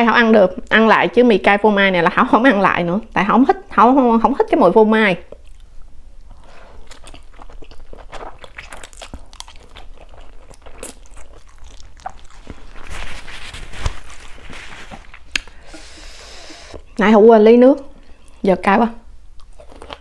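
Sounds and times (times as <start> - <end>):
wet chewing and mouth smacks: 5.3 - 13.4, 19.3 - 20.0
hissing noise: 15.4 - 16.9
slurping noodles: 15.6 - 16.8.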